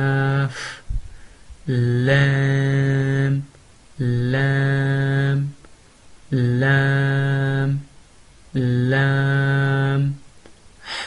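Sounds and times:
man chanting a drawn-out syllable: 0.0s - 0.8s, 1.6s - 5.6s, 6.3s - 7.9s, 8.5s - 10.3s.

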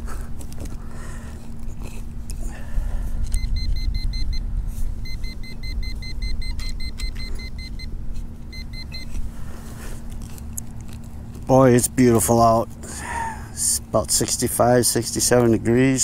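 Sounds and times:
low rumble: 2.7s - 8.2s
metal detector beeping: 3.2s - 9.3s.

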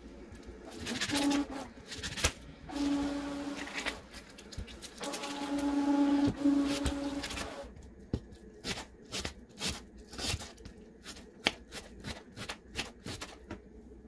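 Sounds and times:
steady hum with hiss: 0.0s - 14.0s
knife cutting onion on plastic mat: 0.6s - 2.5s, 8.1s - 13.6s.

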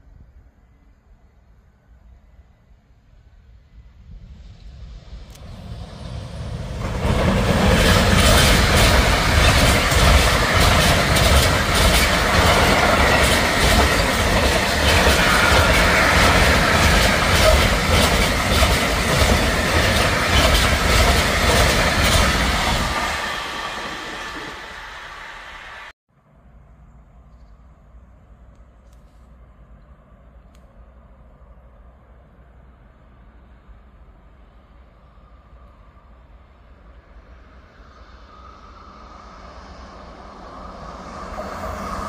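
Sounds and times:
train rumble: 0.0s - 42.0s
freight train wheels clattering: 6.6s - 25.1s.

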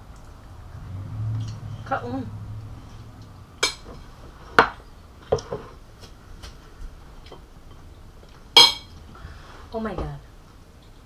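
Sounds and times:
cutlery clinking on plates: 8.6s - 8.9s.

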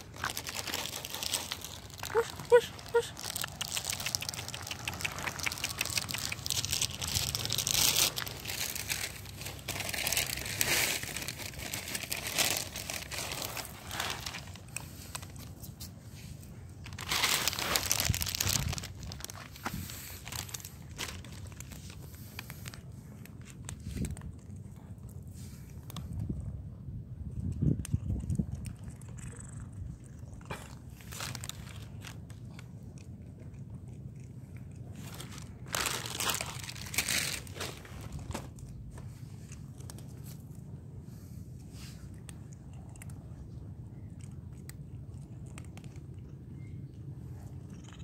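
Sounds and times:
plastic bag crinkling: 0.0s - 15.6s, 16.8s - 24.3s, 30.9s - 32.6s, 35.0s - 38.8s.

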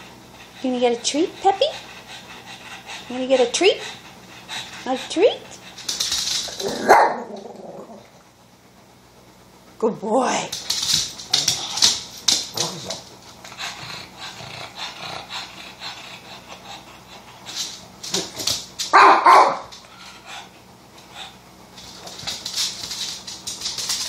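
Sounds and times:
dog claws clicking on wood floor: 5.6s - 6.8s, 10.5s - 13.2s, 17.5s - 19.0s, 21.8s - 24.0s
dog barking: 6.8s - 7.3s, 18.9s - 19.7s.

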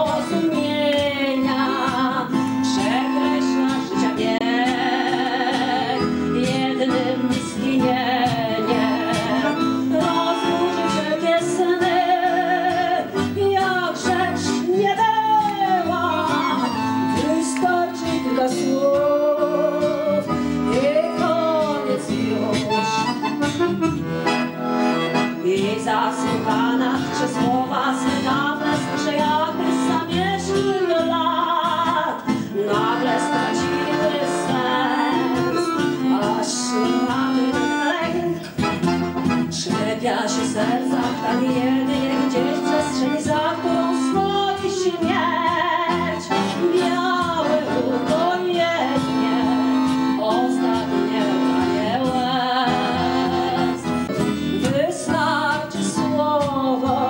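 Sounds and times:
woman singing with vibrato: 0.0s - 23.8s, 25.1s - 57.0s
accordion playing tango: 0.0s - 57.0s.

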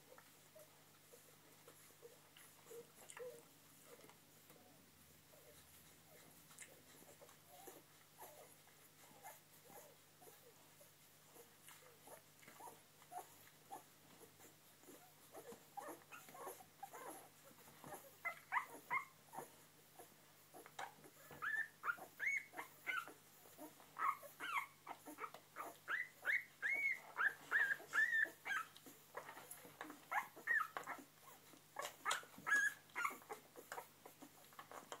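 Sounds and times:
puppies squeaking and whimpering: 14.8s - 19.6s, 20.6s - 35.0s.

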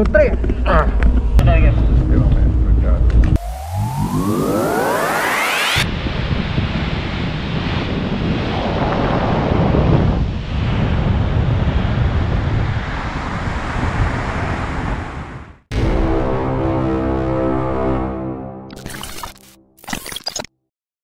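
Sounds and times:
bow wave rushing: 1.4s - 6.1s
rising sweep: 1.4s - 6.2s, 15.7s - 19.6s
wind buffeting microphone: 5.8s - 15.6s.

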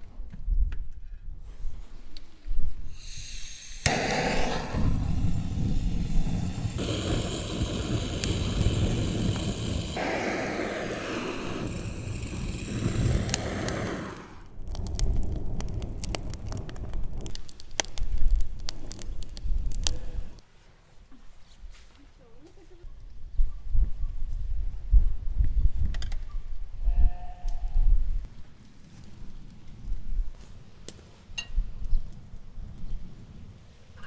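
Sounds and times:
fire rushing: 3.0s - 20.4s
burning wood crackling: 3.7s - 20.7s, 28.1s - 34.0s.

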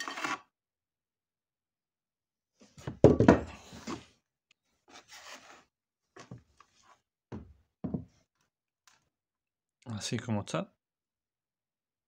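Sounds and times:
knocks and scraping on work surface: 2.6s - 4.2s, 4.9s - 8.3s.

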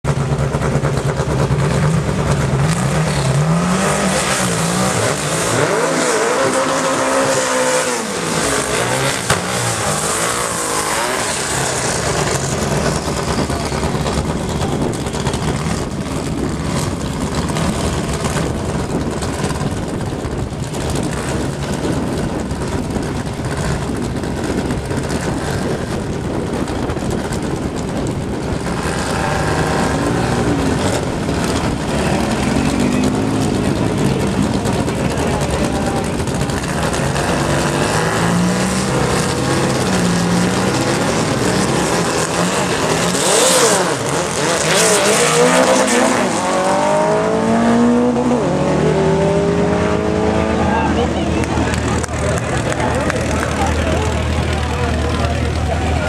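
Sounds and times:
loud car engines running: 0.0s - 56.0s
engine revving: 0.1s - 56.0s.

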